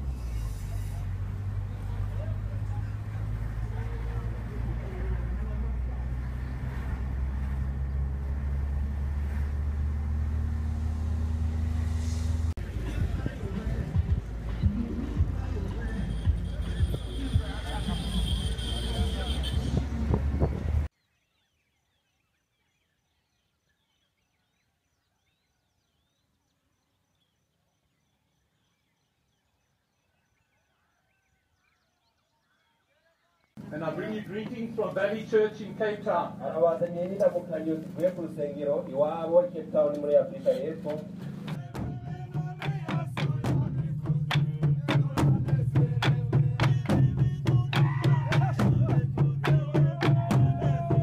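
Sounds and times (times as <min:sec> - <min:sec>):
distant birds chirping: 0:00.0 - 0:12.8, 0:13.4 - 0:51.0
vehicle engine and road noise: 0:00.0 - 0:20.9, 0:33.6 - 0:51.0.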